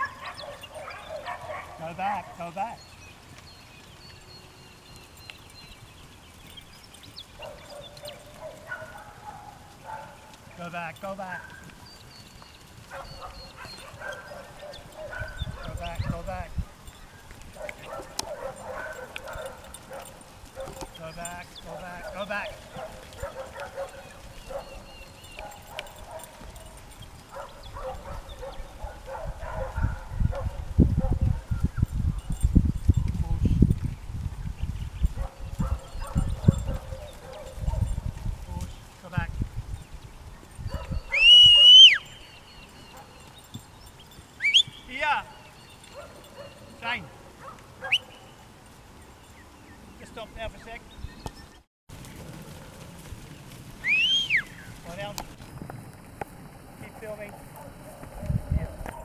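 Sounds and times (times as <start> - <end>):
cattle hooves shuffling and thudding: 0.0 - 59.0.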